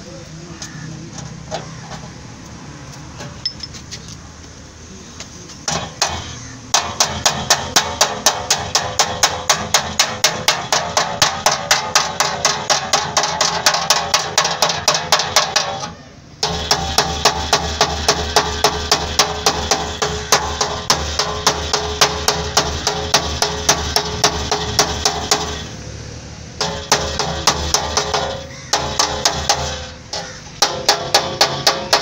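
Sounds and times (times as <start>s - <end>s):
hammer tapping on steel: 5.7s - 25.7s, 26.6s - 32.0s.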